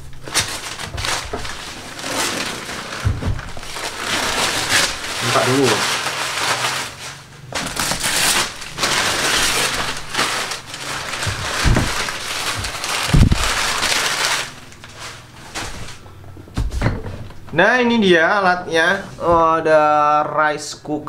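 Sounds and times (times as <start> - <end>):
paper crumpling and crackling: 0.0 - 16.1
low thumps: 3.0 - 4.0, 8.8 - 14.3.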